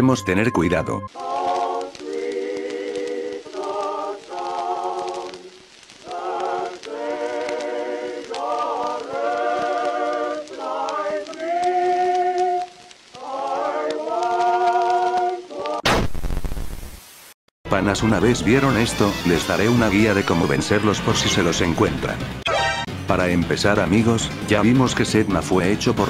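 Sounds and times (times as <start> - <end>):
unaccompanied choir singing chords: 1.1 - 15.8.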